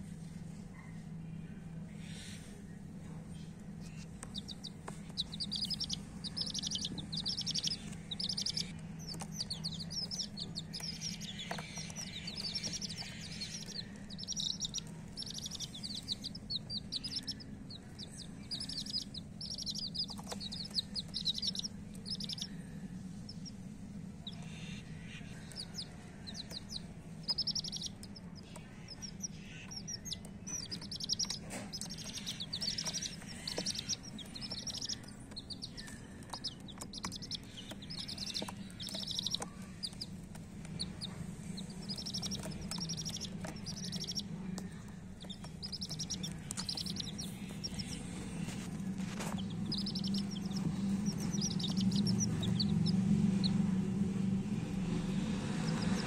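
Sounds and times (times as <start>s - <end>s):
steady low hum: 0.0s - 56.0s
chicks peeping: 0.1s - 56.0s.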